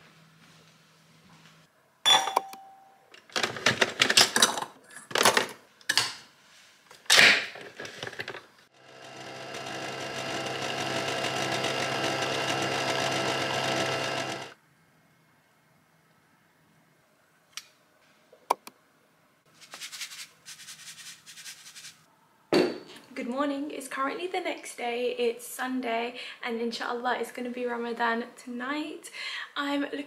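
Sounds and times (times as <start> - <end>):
coffee machine whirring hum: 8.7 - 14.6.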